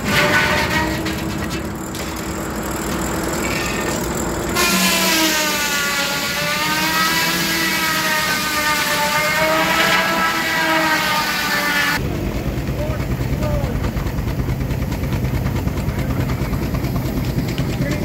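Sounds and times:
circular saw cutting log: 0.0s - 12.0s.

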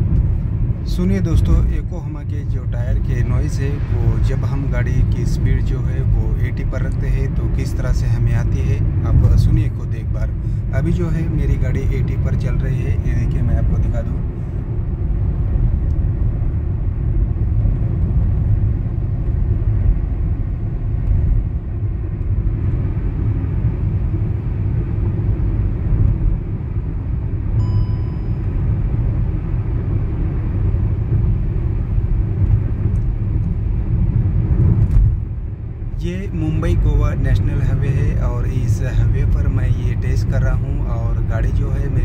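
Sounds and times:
tyre road noise rumble: 0.0s - 42.0s
short faint beep: 27.6s - 28.6s.

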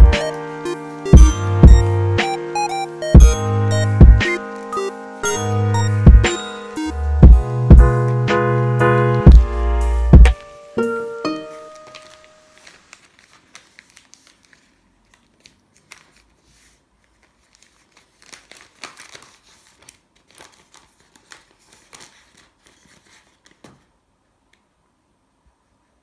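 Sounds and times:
piano note: 0.0s - 12.6s
newspaper crinkling: 4.4s - 5.2s, 11.4s - 24.0s.

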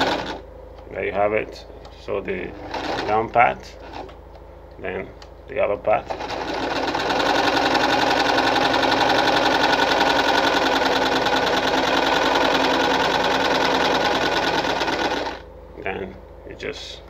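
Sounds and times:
sewing machine stitching: 0.0s - 0.4s, 2.5s - 4.1s, 6.0s - 15.4s.

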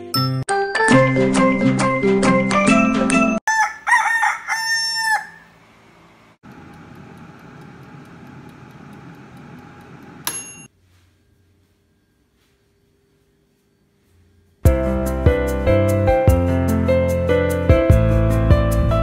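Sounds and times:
rooster crowing: 3.5s - 5.6s
air fryer whirring: 5.4s - 10.7s
timer bell ding: 10.2s - 10.7s.

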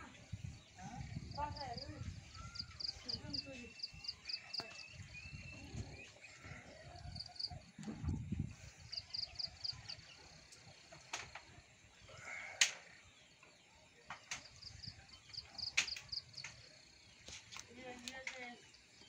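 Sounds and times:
sharp clicks: 15.6s - 16.6s.

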